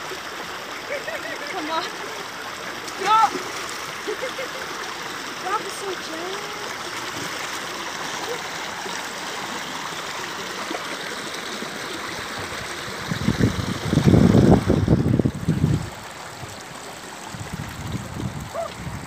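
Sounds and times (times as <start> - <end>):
stream running over stones: 0.0 - 19.0
low rumbling buffeting microphone: 12.9 - 16.6, 17.3 - 19.0.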